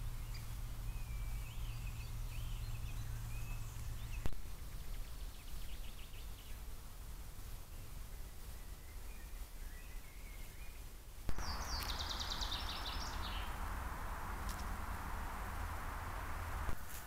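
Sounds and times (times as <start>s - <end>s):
faint bird song: 0.0s - 17.0s
steady hiss: 10.8s - 17.0s
songbird rapid high trill: 11.3s - 16.7s.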